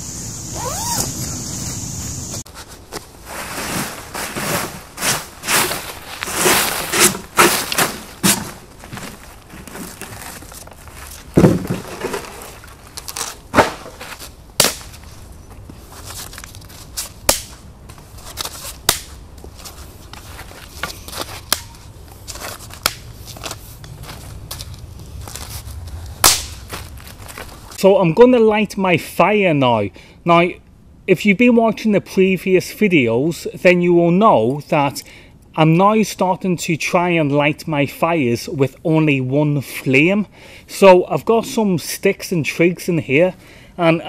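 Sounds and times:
dry leaves rustling: 0.6 - 27.8
sticks cracking: 17.2 - 17.6, 18.4 - 19.3, 20.8 - 27.4.

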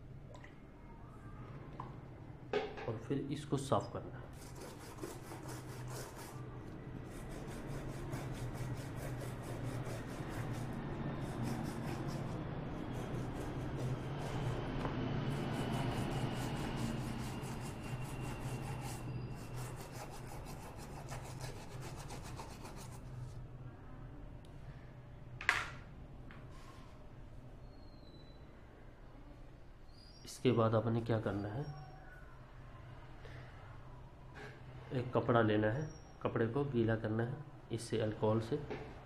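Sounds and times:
brush scrubbing circuit board: 4.4 - 6.4, 7.0 - 14.7, 15.3 - 23.0.

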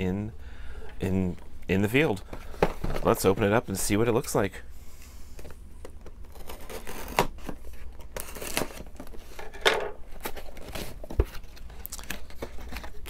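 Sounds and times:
cardboard and tape tearing: 6.3 - 9.1.

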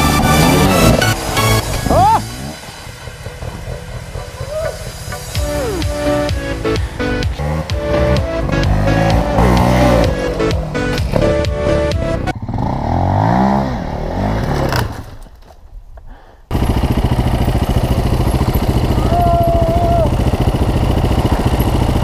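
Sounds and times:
music: 0.0 - 12.3
dirt bike engine revving: 0.0 - 15.2, 16.5 - 22.0
dirt bike engines at low revs: 0.0 - 22.0.

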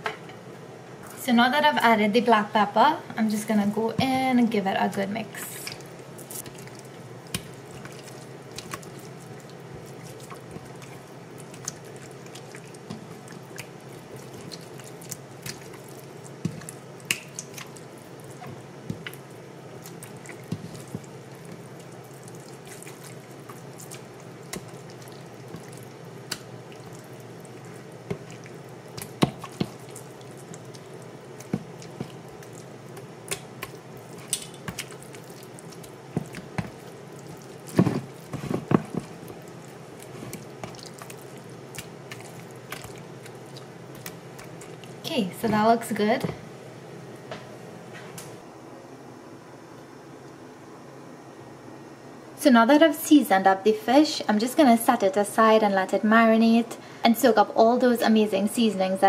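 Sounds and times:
steady low hum: 0.0 - 59.0
hands squishing wet fish: 4.8 - 46.3.

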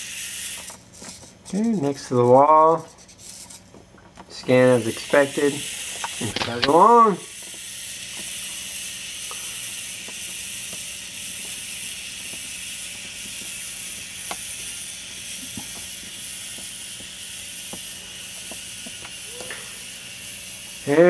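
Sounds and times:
robot gear motors and treads: 5.0 - 19.6.

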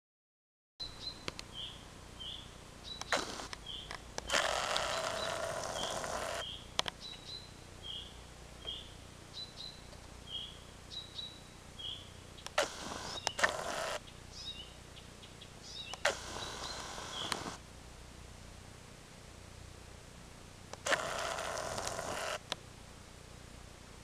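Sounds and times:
small animal chirping: 1.0 - 8.1, 8.7 - 17.6, 20.8 - 22.4
sharp clicks: 2.9 - 7.0, 12.4 - 14.0, 15.9 - 17.6, 20.7 - 22.6.

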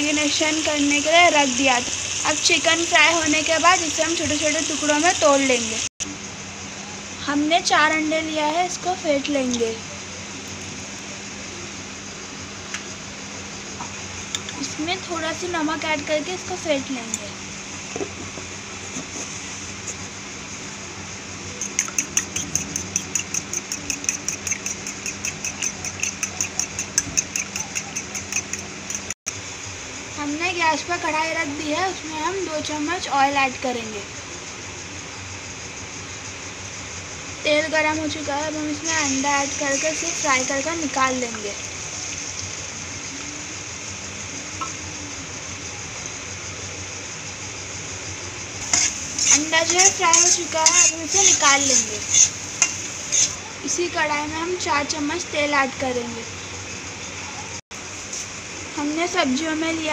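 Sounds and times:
eggs sizzling in hot oil: 0.0 - 5.9, 21.6 - 29.2, 37.5 - 43.7, 48.6 - 55.8
eggs beaten in a steel bowl: 21.6 - 29.2.

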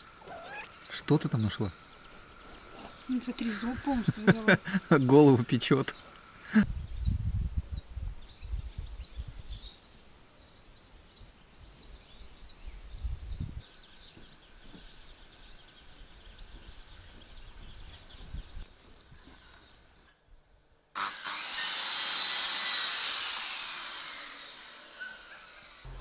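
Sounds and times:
faint birds chirping: 0.0 - 20.9
low rumbling on microphone: 6.7 - 9.6, 12.6 - 13.6.

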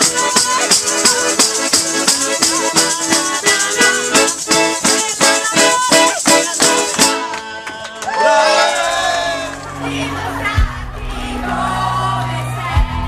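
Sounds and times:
sharp percussion beat: 0.0 - 7.6
live band playing instrumental: 0.0 - 11.3.

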